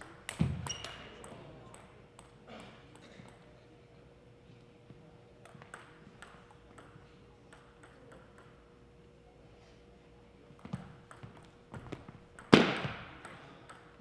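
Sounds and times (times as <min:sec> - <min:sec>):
table tennis ball bouncing: 0:00.0 - 0:03.4, 0:05.4 - 0:08.6, 0:10.6 - 0:14.0
faint steady hum: 0:00.0 - 0:14.0.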